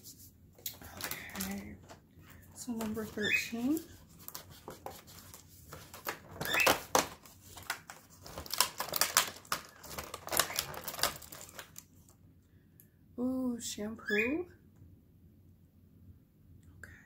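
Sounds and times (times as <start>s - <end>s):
cardboard crinkling and rustling: 0.0s - 12.1s
cardboard clicking: 2.7s - 11.8s.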